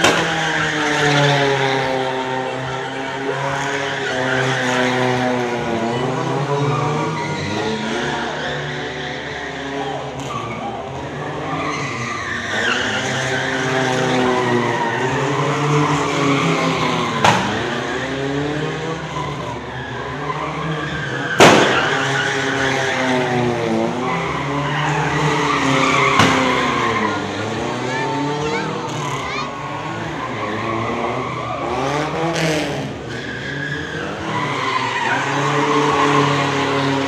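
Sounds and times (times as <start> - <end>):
car engines revving: 0.0 - 37.0
tyres squealing and skidding: 0.0 - 37.0
sharp bangs: 21.3 - 22.2.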